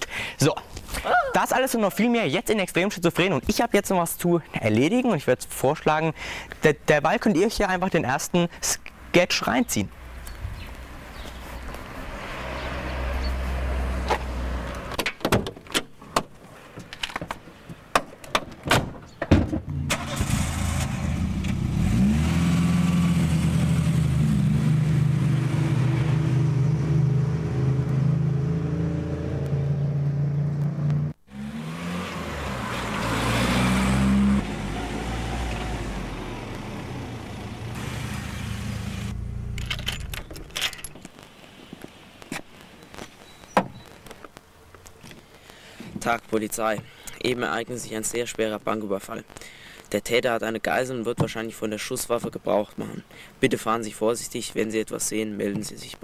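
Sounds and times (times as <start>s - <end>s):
car engine starting and revving: 12.1s - 14.9s, 19.7s - 40.3s
car door clicks and knocks: 15.0s - 16.4s.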